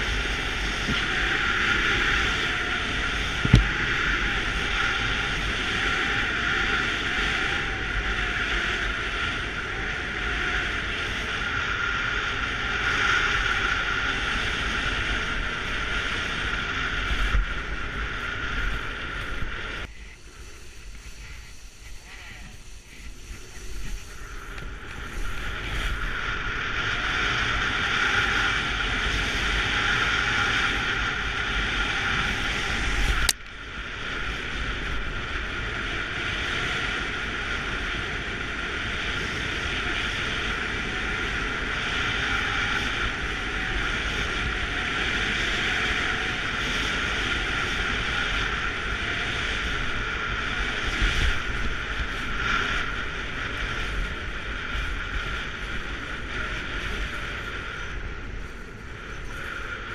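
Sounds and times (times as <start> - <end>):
wind buffeting microphone: 0.0 - 59.9
skis running over snow: 18.7 - 26.4.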